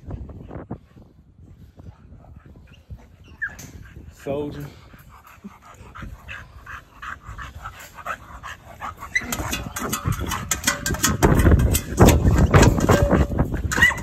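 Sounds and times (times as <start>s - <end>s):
dog yipping and whining: 2.7s - 3.8s, 13.7s - 14.0s.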